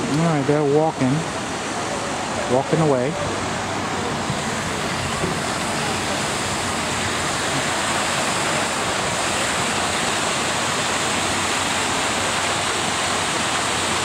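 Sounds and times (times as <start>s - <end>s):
waterfall pouring into pool: 0.0s - 14.0s.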